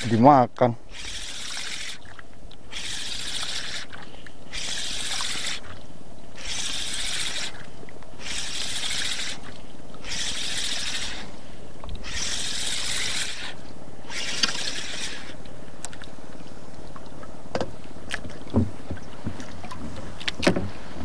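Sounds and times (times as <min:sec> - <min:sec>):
fishing reel whirring: 0:00.0 - 0:00.3, 0:00.9 - 0:02.1, 0:02.7 - 0:05.8, 0:06.4 - 0:11.3, 0:12.0 - 0:15.4.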